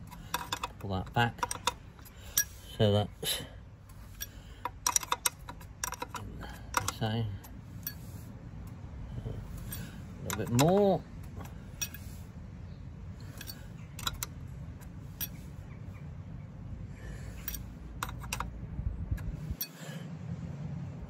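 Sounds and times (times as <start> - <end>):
spanner clicking on metal: 0.0 - 2.9, 3.8 - 8.8, 9.4 - 12.2, 13.2 - 15.5, 17.3 - 19.8
low steady rumble: 0.0 - 21.0.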